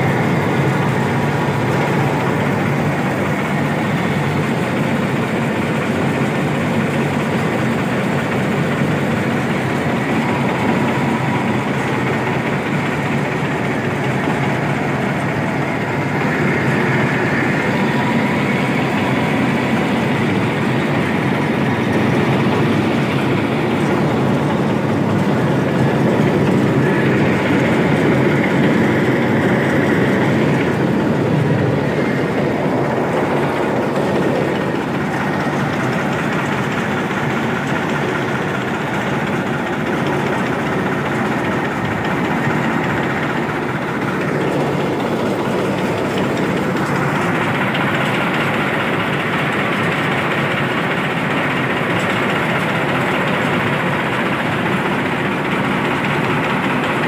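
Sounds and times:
rice mill machinery din: 0:00.0 - 0:57.0
tractor engine: 0:00.0 - 0:57.0.

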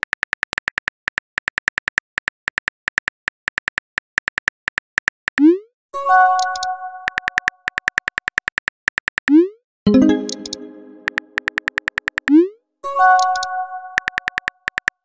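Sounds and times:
keyboard tap clicks: 0:06.4 - 0:12.4, 0:13.2 - 0:15.0.

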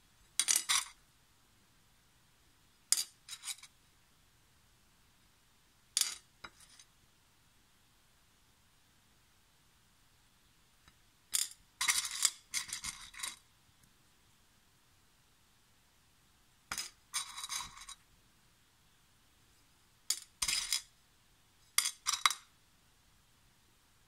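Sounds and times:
stones clinking on ceramic dish: 0:00.4 - 0:01.0, 0:02.9 - 0:03.7, 0:06.0 - 0:06.9, 0:11.3 - 0:13.4, 0:16.7 - 0:18.0, 0:20.1 - 0:20.9, 0:21.8 - 0:22.5.

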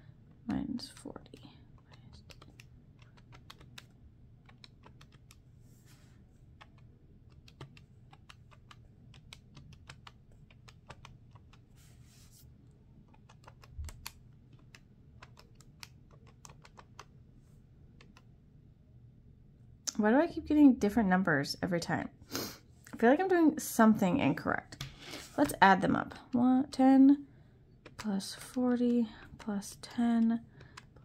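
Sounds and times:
calculator keys tapping: 0:00.3 - 0:05.4, 0:06.5 - 0:11.8, 0:12.9 - 0:17.2, 0:17.9 - 0:18.3, 0:27.8 - 0:31.0.

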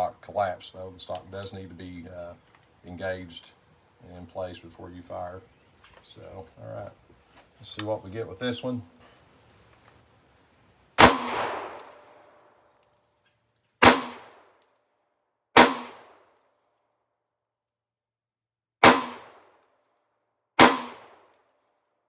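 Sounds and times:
rifle gunshots echoing: 0:11.0 - 0:12.2, 0:13.8 - 0:14.5, 0:15.6 - 0:16.2, 0:18.8 - 0:19.6, 0:20.6 - 0:21.3.

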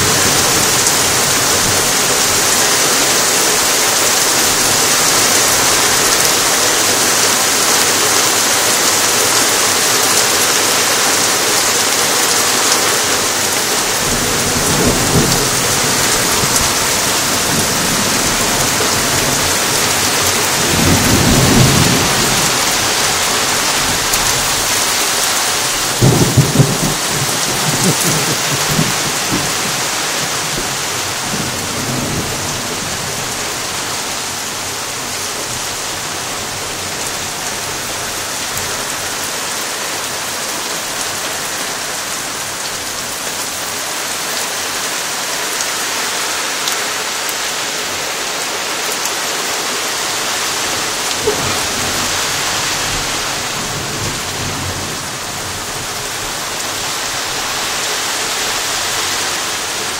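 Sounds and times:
heavy rain falling: 0:00.0 - 0:59.9
thunder rumbling: 0:13.0 - 0:37.9, 0:50.6 - 0:56.1.

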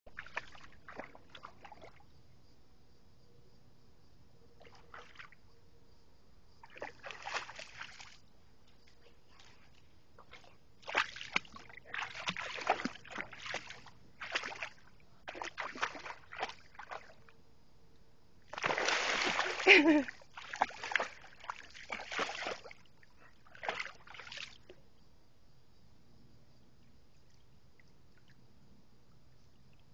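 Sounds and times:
dog splashing through water: 0:00.1 - 0:02.0, 0:06.6 - 0:08.2, 0:09.4 - 0:17.2, 0:18.5 - 0:24.7.

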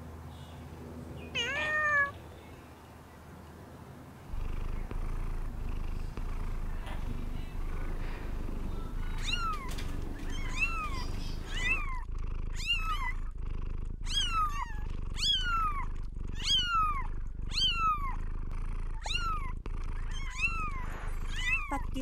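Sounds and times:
cat meowing: 0:01.3 - 0:02.2, 0:06.7 - 0:13.2, 0:14.0 - 0:18.2, 0:19.0 - 0:21.9
cat purring: 0:04.3 - 0:22.0.

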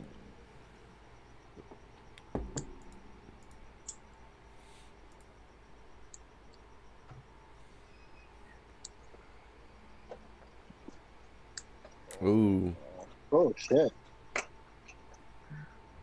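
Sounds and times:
computer mouse clicks: 0:02.1 - 0:04.0, 0:05.1 - 0:05.3.

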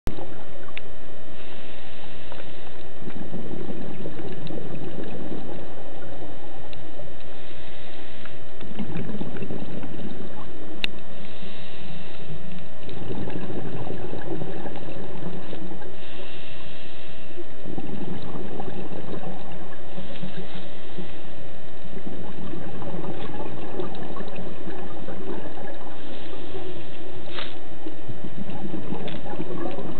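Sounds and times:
scuba regulator hissing inhale: 0:01.3 - 0:02.8, 0:07.3 - 0:08.5, 0:11.1 - 0:12.5, 0:15.9 - 0:17.5, 0:19.9 - 0:21.4, 0:26.0 - 0:27.7
exhaled bubbles underwater: 0:02.2 - 0:07.4, 0:08.3 - 0:29.9.

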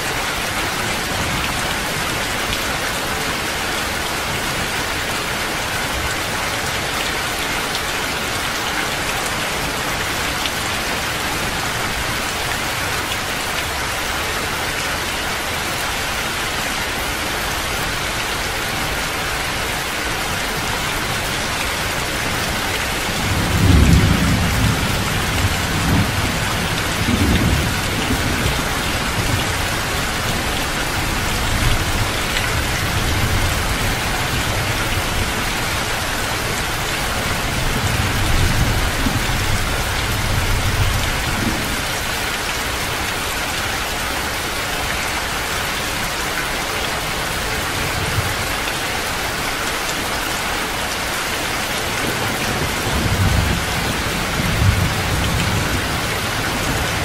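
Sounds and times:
heavy rain pouring: 0:00.0 - 0:57.0
thunder rumbling: 0:23.2 - 0:29.9.

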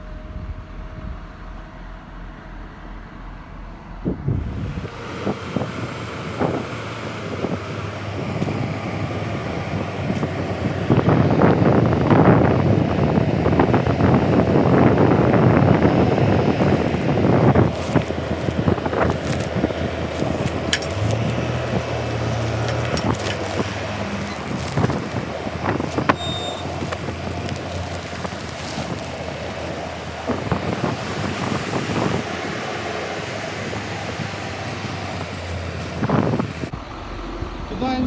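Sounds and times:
tractor engine running: 0:00.0 - 0:38.0
wind buffeting microphone: 0:00.0 - 0:38.0
plastic bag rustling: 0:17.6 - 0:29.5.

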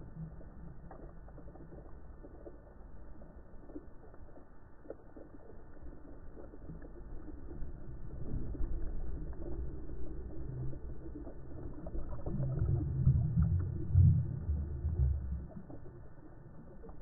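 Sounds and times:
muffled underwater rumble: 0:00.0 - 0:17.0.

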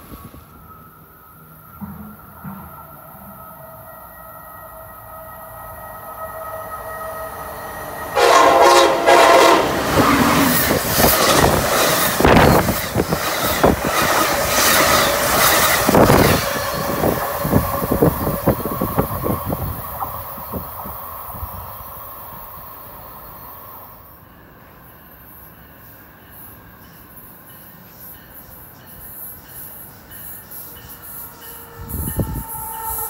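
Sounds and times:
train horn blast: 0:03.7 - 0:10.7, 0:31.5 - 0:33.0
train wheels clickety-clack: 0:08.4 - 0:21.0.

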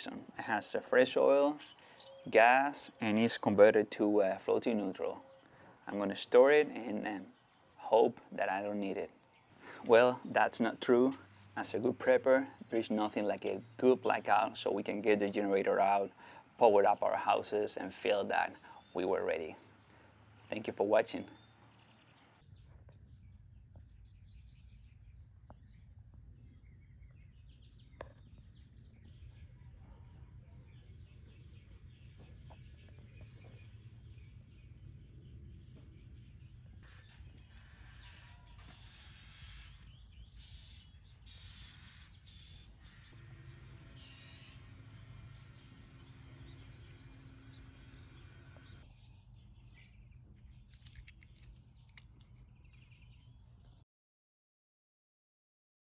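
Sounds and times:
faint bird chirps: 0:01.6 - 0:03.1, 0:21.2 - 0:51.0
bird call: 0:36.8 - 0:48.8
sharp clicks: 0:50.4 - 0:52.5.

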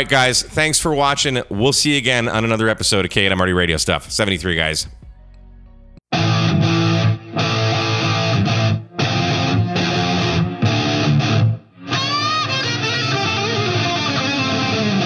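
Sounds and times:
distorted electric guitar rock music: 0:06.1 - 0:15.0.

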